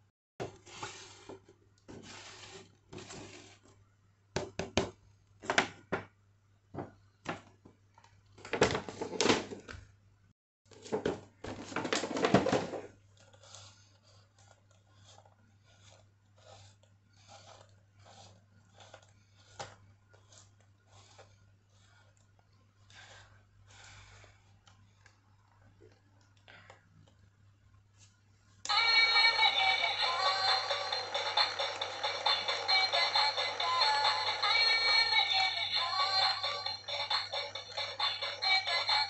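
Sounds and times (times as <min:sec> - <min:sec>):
handling plastic toy and cardboard box: 0:00.4 - 0:03.8, 0:08.3 - 0:09.9, 0:10.7 - 0:22.4.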